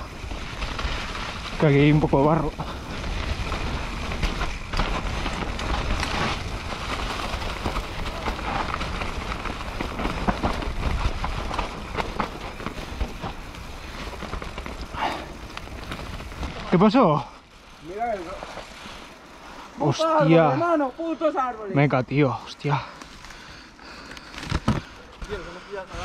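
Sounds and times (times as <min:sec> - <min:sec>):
bike chain and frame clicking: 0:00.0 - 0:21.6
bike tyres over dirt and stones: 0:00.0 - 0:26.0
wind and helmet noise: 0:00.0 - 0:26.0.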